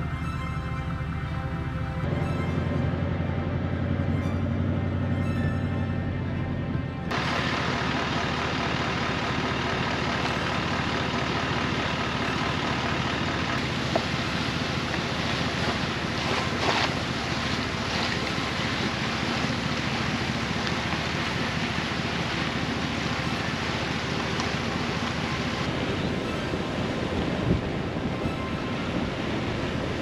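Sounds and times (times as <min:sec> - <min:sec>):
tyres on wet dirt road: 0:00.0 - 0:30.0
wind on microphone: 0:25.7 - 0:30.0.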